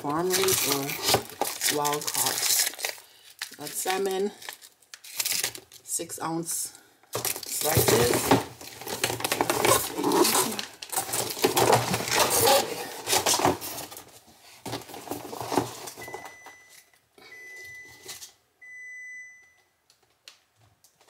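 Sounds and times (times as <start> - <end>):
plastic packaging crinkling: 0.0 - 5.9, 7.1 - 16.1
refrigerator alarm beeps: 16.0 - 19.8.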